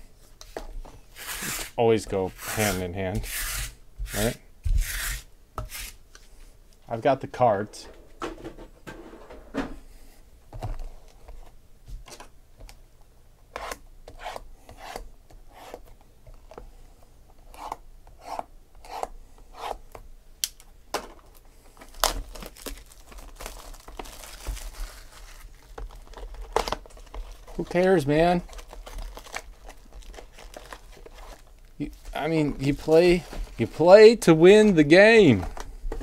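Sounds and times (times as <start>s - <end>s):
plastic shrink wrap tearing: 21.9s - 31.8s.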